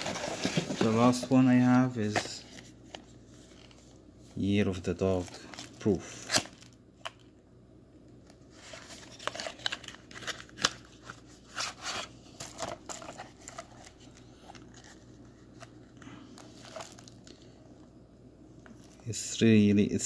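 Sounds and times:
cardboard box scraping and rustling: 0:00.0 - 0:01.2.

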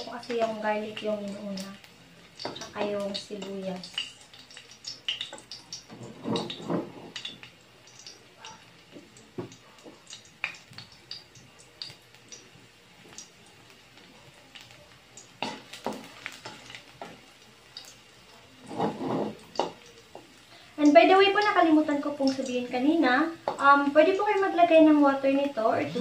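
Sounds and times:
garlic sizzling in oil: 0:00.0 - 0:26.0
spatula scraping and tapping pan: 0:04.8 - 0:10.9, 0:15.4 - 0:17.2, 0:18.6 - 0:20.4, 0:23.4 - 0:23.7.

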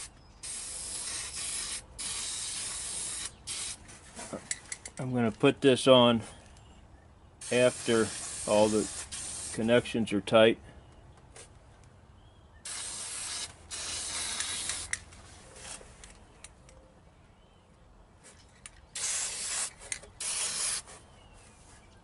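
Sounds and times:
aerosol can spraying: 0:00.0 - 0:03.8, 0:07.4 - 0:09.6, 0:12.7 - 0:15.0, 0:19.0 - 0:20.9.

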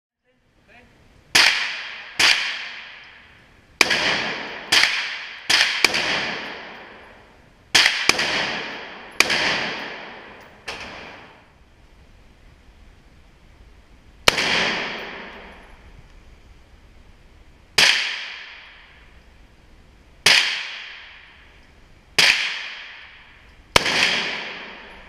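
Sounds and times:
rifle shots echoing indoors: 0:01.3 - 0:11.6, 0:14.2 - 0:15.9, 0:17.8 - 0:19.3, 0:20.2 - 0:25.0.

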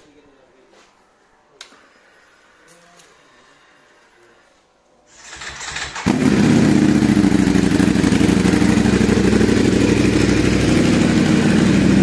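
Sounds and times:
motorcycle engine idling: 0:05.2 - 0:12.0.

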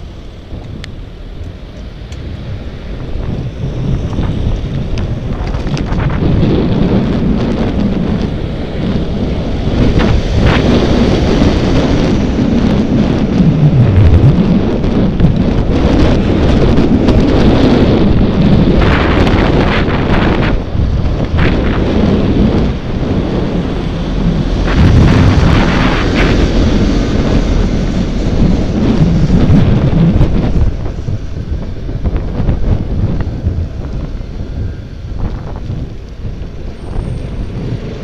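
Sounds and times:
road rumble: 0:00.0 - 0:38.0
wind buffeting microphone: 0:00.0 - 0:38.0.

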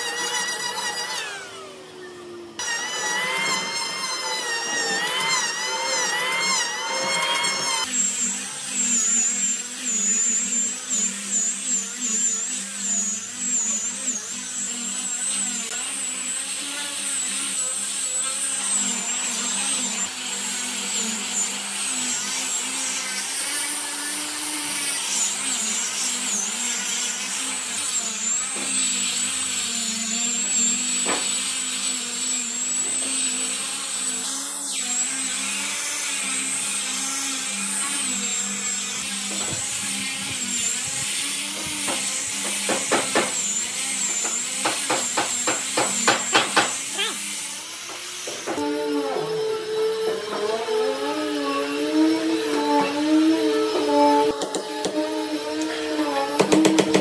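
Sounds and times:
power tool whining: 0:00.0 - 0:57.0.

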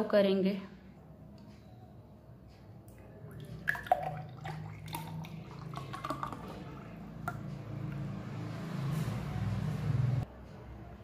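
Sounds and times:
milkshake pouring and splashing: 0:03.0 - 0:08.1.

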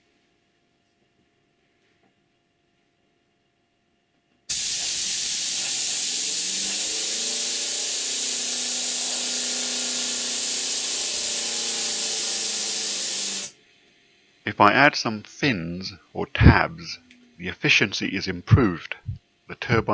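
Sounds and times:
compressed air jet hissing: 0:04.5 - 0:13.5.

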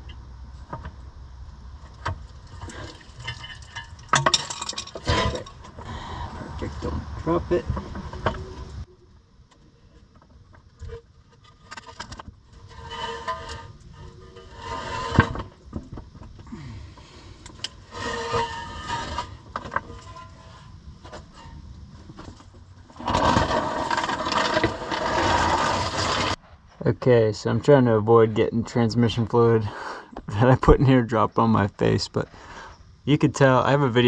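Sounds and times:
scraping and rustling: 0:09.6 - 0:26.8.

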